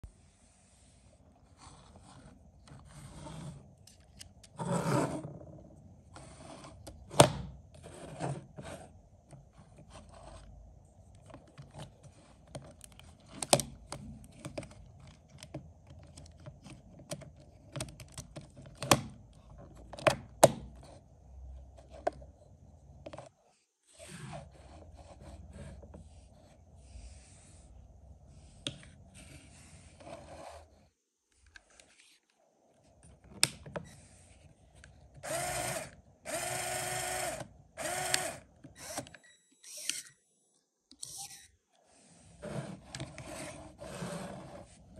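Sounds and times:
plastic parts clicking and rattling: 11.2s - 20.6s
small motor whining: 35.2s - 40.2s.

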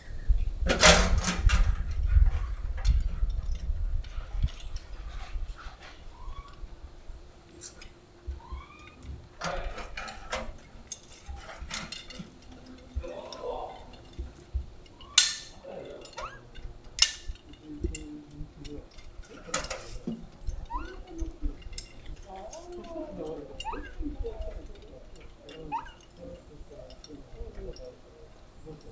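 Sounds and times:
chain and tin can clinking: 2.8s - 5.3s, 9.5s - 13.0s, 13.7s - 28.0s.

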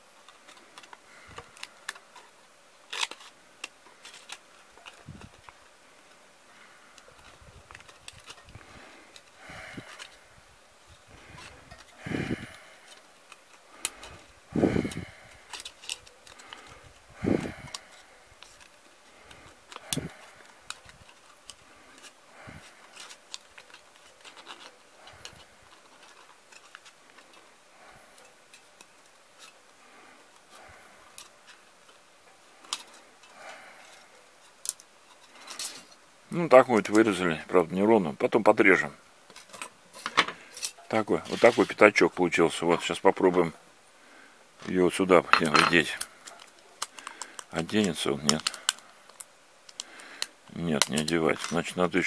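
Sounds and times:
foil crinkling: 0.0s - 10.3s, 11.0s - 43.5s, 44.1s - 52.0s
scissors snipping foil: 2.9s - 5.0s, 14.9s - 16.9s, 45.4s - 51.8s.

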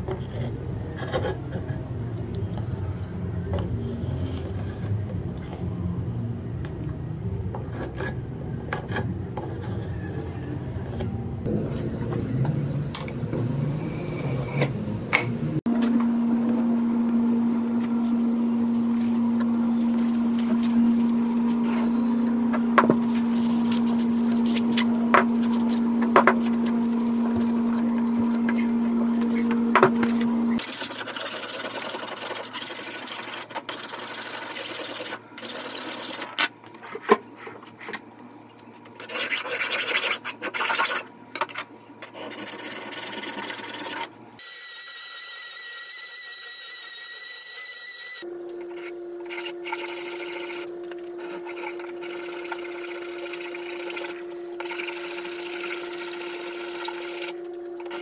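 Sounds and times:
steady hum: 0.0s - 33.5s, 48.2s - 58.0s.

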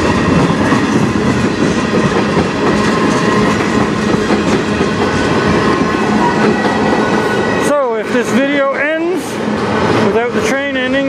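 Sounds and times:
train wheels rumbling on rails: 0.0s - 11.0s.

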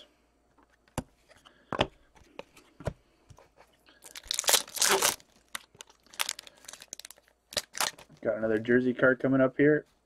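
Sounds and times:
foil wrapper tearing and crinkling: 4.0s - 8.1s.

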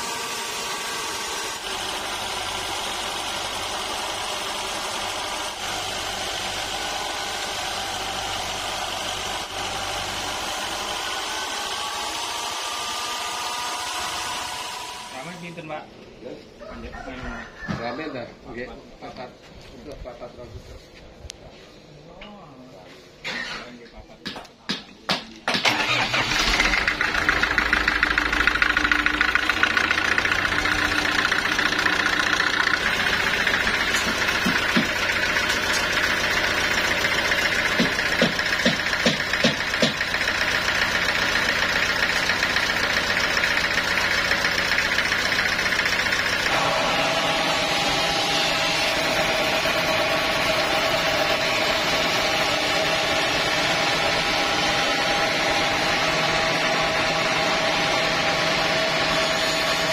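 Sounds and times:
diesel engine running: 0.0s - 15.6s, 25.6s - 59.9s
high-pitched machine hum: 39.8s - 59.9s.

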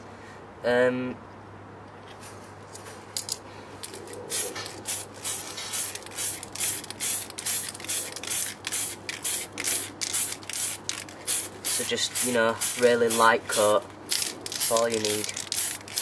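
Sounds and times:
spray paint can hissing: 4.3s - 16.0s.

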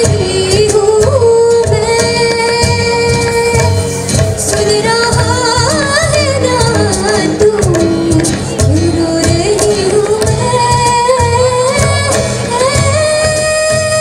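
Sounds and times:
acoustic guitar: 0.0s - 14.0s
cajon drum strokes: 0.0s - 14.0s
tabla: 0.0s - 14.0s
woman singing: 0.0s - 14.0s.

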